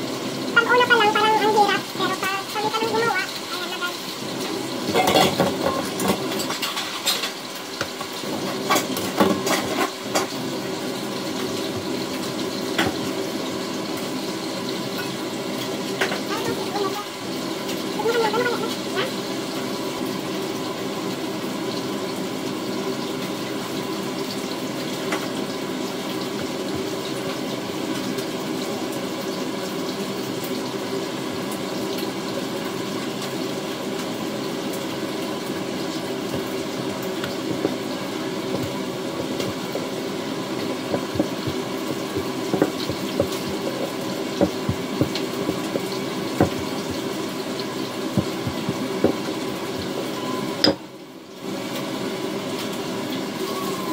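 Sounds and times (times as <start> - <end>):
rolling pin knocking on dough: 38.5 - 39.7, 40.9 - 47.1, 48.2 - 50.0.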